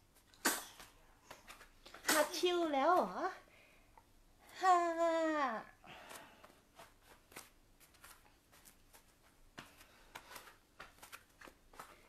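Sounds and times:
body movement on yoga mat: 0.0 - 3.2, 5.9 - 12.0.

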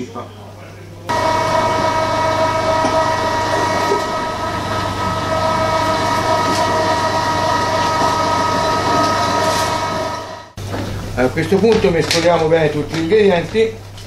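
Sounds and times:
kitchen appliance motor whining: 1.1 - 10.6.

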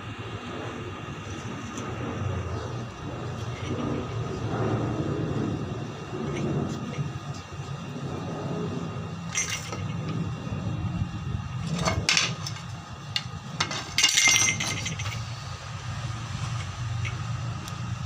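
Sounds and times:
low engine hum: 0.0 - 18.0
scratchy clinks and rasps: 9.3 - 10.2, 11.6 - 15.3.

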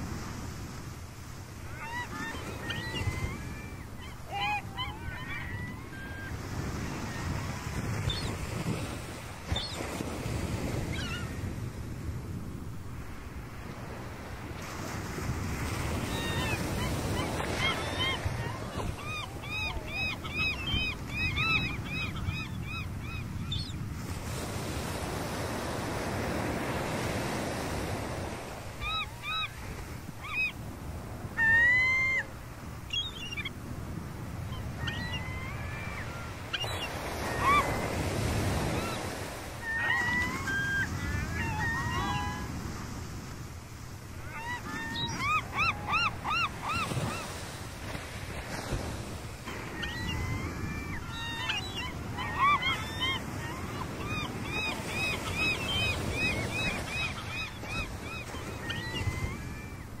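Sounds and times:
surf breaking on a beach: 0.0 - 32.9
gulls calling: 1.6 - 11.4, 15.5 - 42.8, 44.1 - 60.0.

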